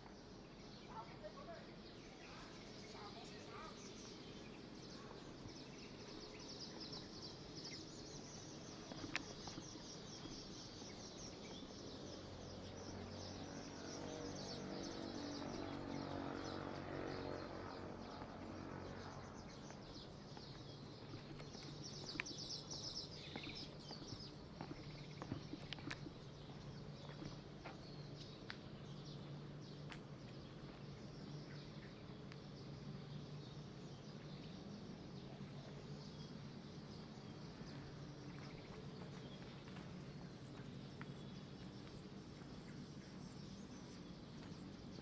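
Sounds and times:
birds chirping and twittering: 0.0s - 45.0s
low hum: 12.2s - 45.0s.

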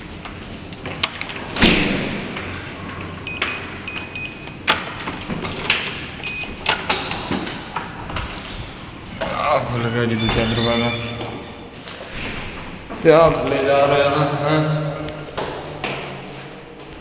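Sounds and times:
keypad electronic beeps: 3.3s - 4.6s, 6.2s - 6.7s
heavy door thudding shut: 10.0s - 11.4s.

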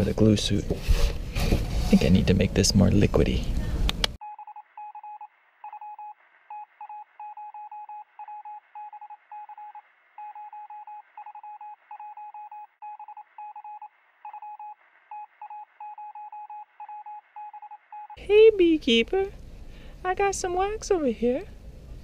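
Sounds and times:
morse code style beeping: 4.2s - 18.2s.

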